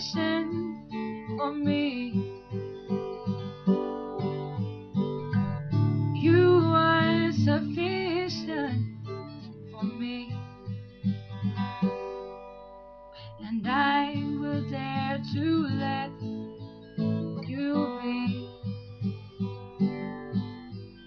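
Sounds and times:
woman singing: 0.0s - 2.4s, 6.2s - 9.0s, 9.8s - 10.5s, 13.2s - 16.3s, 17.3s - 18.8s
acoustic guitar strumming: 0.0s - 21.0s.

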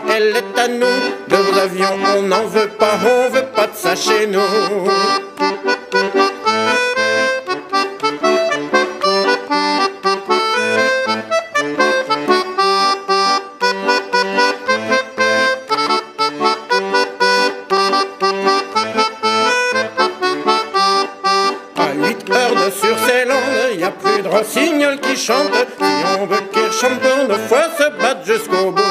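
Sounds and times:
accordion folk dance tune: 0.0s - 28.9s.

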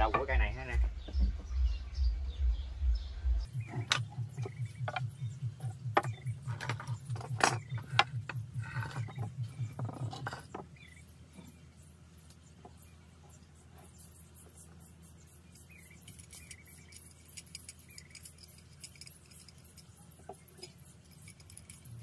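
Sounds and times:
low pulsing hum: 0.0s - 22.0s
wooden blocks clicking and knocking: 6.0s - 10.8s.

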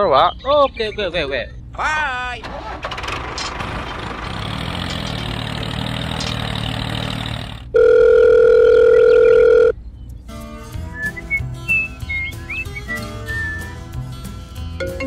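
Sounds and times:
tractor engine running: 0.5s - 15.0s
telephone ringing tone: 7.8s - 9.8s
music with whistled tune: 10.6s - 15.0s.

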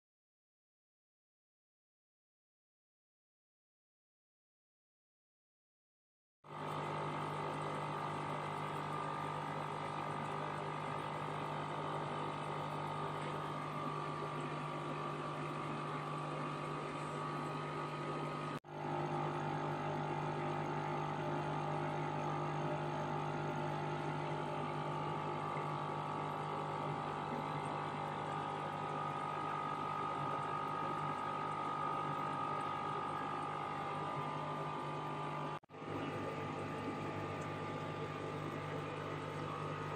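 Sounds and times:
aquarium equipment humming: 6.5s - 39.9s
high steady whine: 8.0s - 39.9s.

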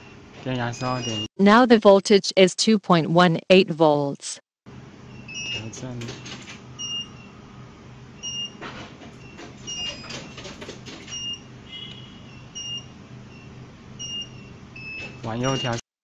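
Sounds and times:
steady low hum: 0.0s - 1.2s
short faint electronic beeps: 0.8s - 1.3s.

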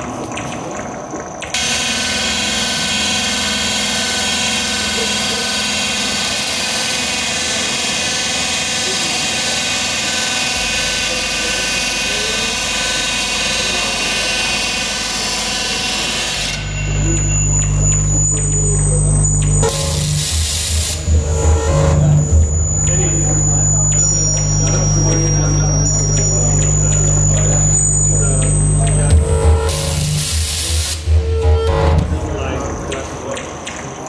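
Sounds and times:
electronic noise drone with high tones: 0.0s - 34.0s
deep low humming drone: 16.6s - 32.8s.

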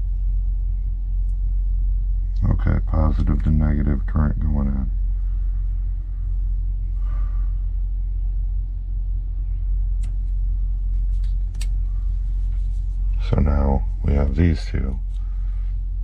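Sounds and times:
steady low rumble: 0.0s - 16.0s
cable connectors clicking: 10.0s - 10.2s, 11.2s - 11.9s.

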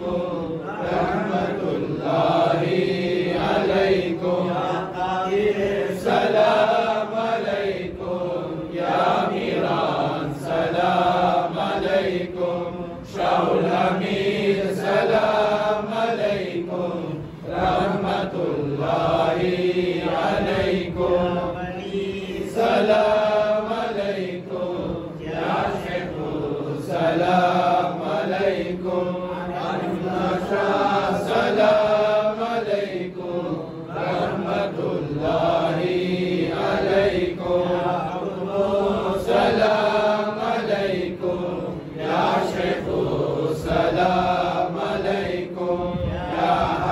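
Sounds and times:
men chanting together: 0.0s - 46.9s.

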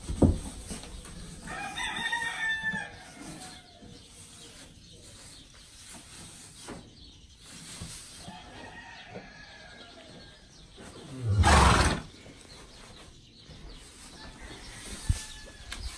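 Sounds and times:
horse snorting: 11.0s - 12.1s.

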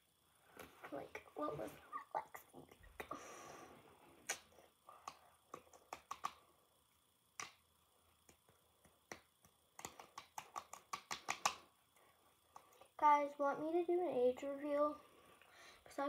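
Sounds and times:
hands patting cheeks: 4.2s - 6.4s, 7.4s - 7.6s, 8.2s - 11.7s.

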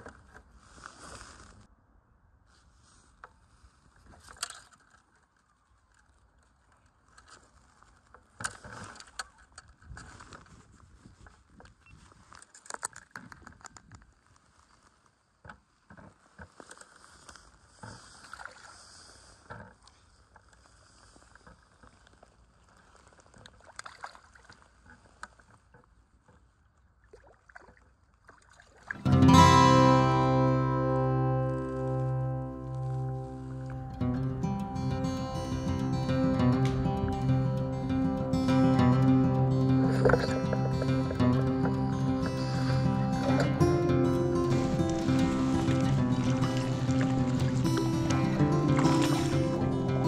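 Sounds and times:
lake water lapping: 32.7s - 50.0s.

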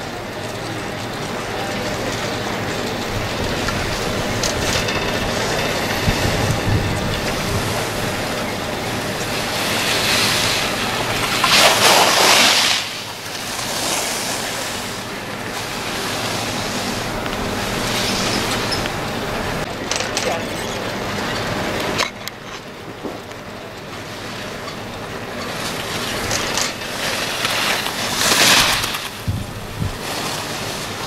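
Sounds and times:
skis scraping over snow: 2.1s - 19.7s, 25.4s - 31.0s
wind on microphone: 3.1s - 9.2s, 28.6s - 30.0s.

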